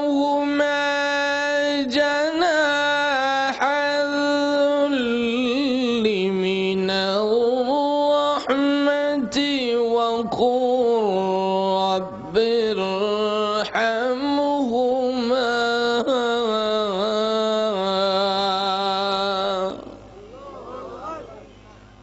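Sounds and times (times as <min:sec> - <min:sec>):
man chanting: 0:00.0 - 0:21.4.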